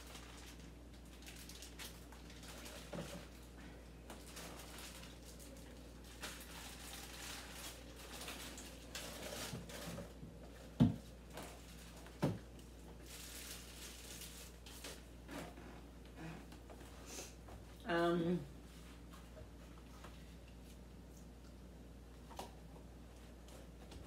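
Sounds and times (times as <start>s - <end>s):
food packages rustling: 0.0s - 15.3s.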